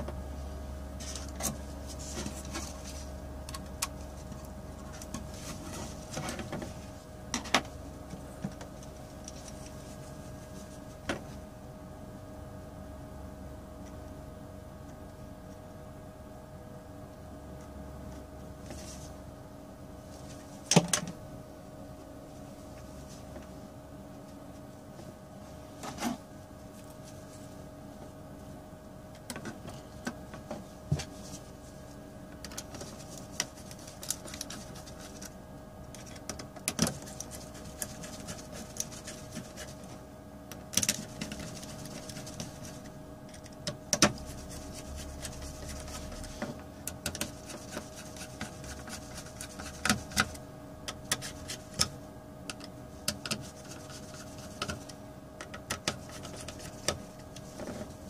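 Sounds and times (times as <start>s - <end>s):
steady hum: 0.0s - 58.0s.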